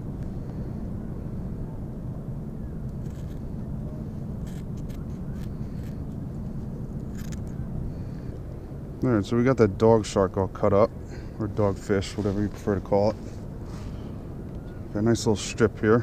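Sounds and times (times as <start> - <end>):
low rumble: 0.0 - 9.4.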